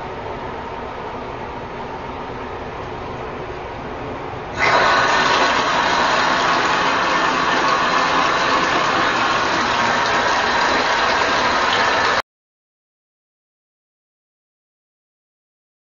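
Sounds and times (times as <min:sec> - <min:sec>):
bathtub jet pump whirring: 0:04.4 - 0:12.2
water churning: 0:04.6 - 0:12.2.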